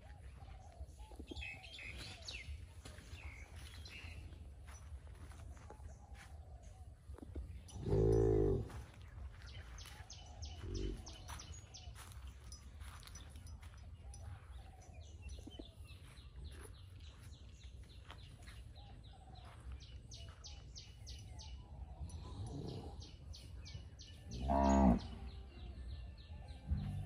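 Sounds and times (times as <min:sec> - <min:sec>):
cow mooing: 0:24.3 - 0:25.2.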